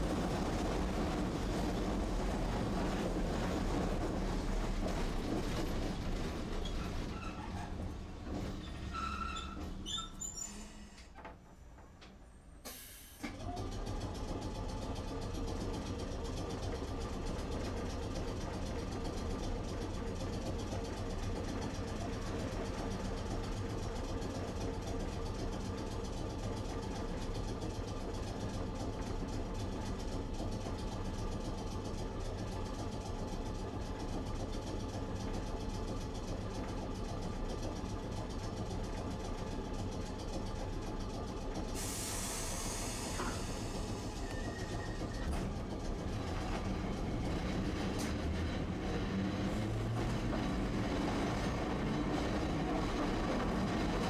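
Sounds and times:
tram humming: 0.0 - 10.0, 10.6 - 54.0
tram running noise: 0.0 - 54.0
hiss of air: 12.6 - 13.3, 41.8 - 44.2.

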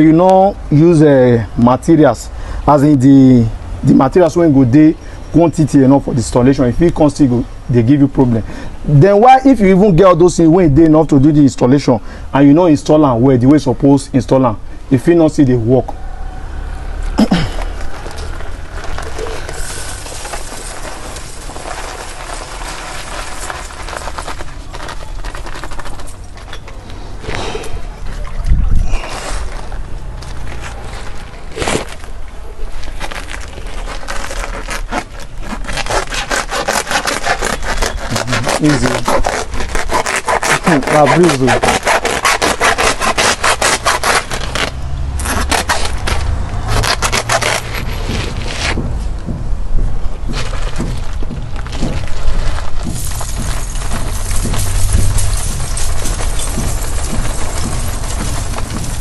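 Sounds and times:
salt sack scraping and rustling: 17.2 - 27.2, 28.9 - 49.1, 50.1 - 59.0
salt grains pouring: 19.3 - 24.2
low steady rumble: 44.9 - 59.0.

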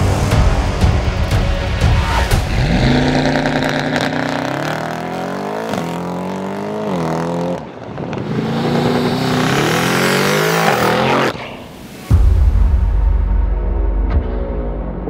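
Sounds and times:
car engine accelerating hard: 2.1 - 11.4.

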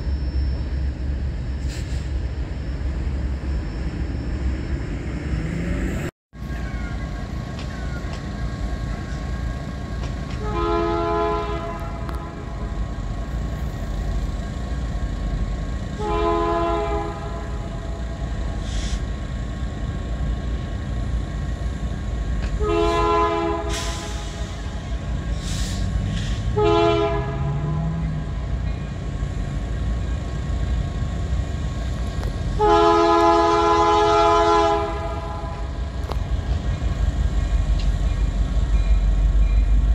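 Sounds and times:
locomotive air horn blasts: 10.4 - 12.8, 15.9 - 18.0, 22.6 - 24.8, 25.4 - 28.3, 32.5 - 35.9.

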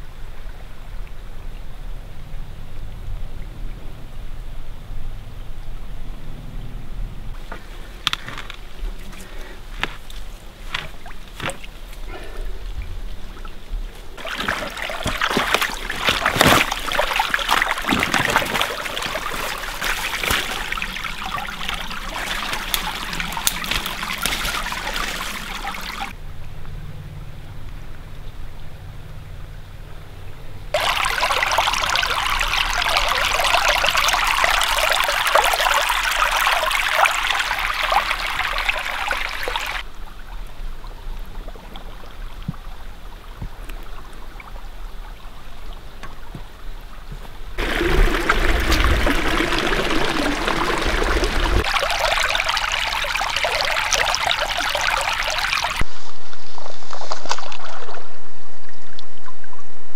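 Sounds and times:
water trickling and splashing: 7.4 - 26.2, 30.7 - 58.2.

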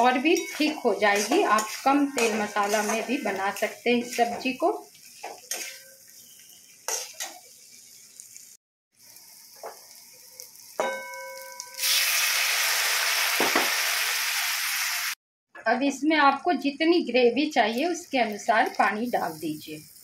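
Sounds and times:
spatula scraping metal pan: 0.0 - 7.4
water sizzling in hot pan: 0.0 - 15.2, 17.6 - 20.0.

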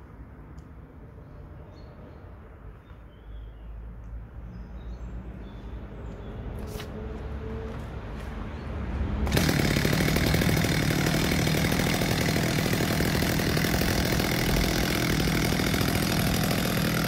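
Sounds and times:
chainsaw starting and idling: 9.2 - 17.0.

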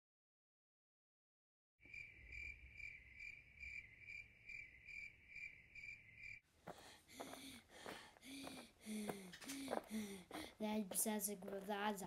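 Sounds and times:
cricket chirping: 1.8 - 6.4.

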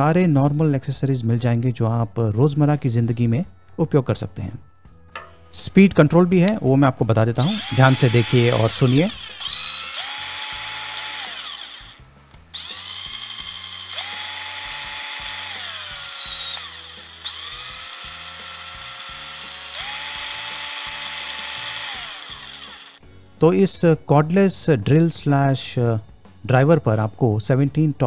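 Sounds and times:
cordless drill motor whine: 7.4 - 23.0.

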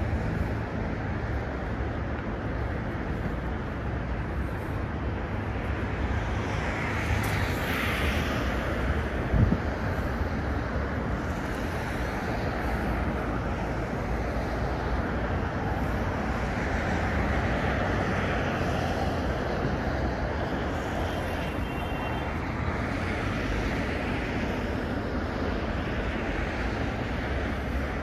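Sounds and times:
city road traffic: 0.0 - 28.0.

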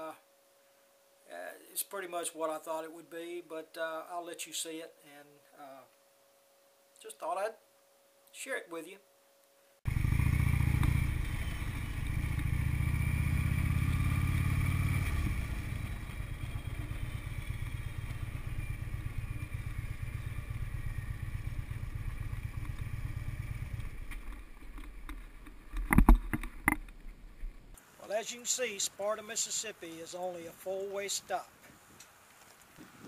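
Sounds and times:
motorcycle engine running: 9.9 - 27.0.

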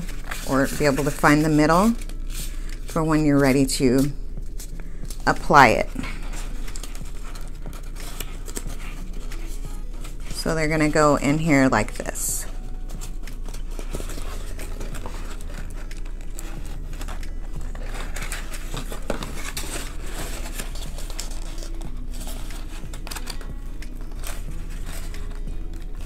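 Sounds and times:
cardboard rustling and scraping: 0.0 - 26.0.

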